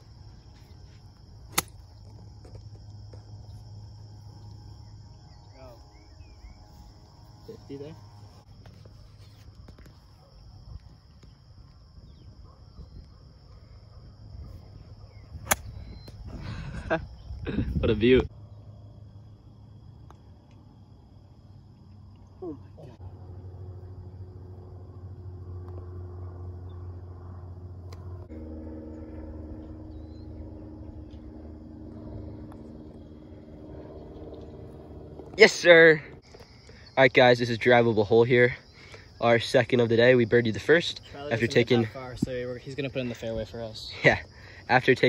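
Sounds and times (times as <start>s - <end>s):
high-pitched insect drone: 0.0s - 9.9s, 20.9s - 45.0s
distant engine hum: 0.0s - 12.6s, 13.2s - 45.0s
wind rumble on microphone: 8.4s - 18.3s.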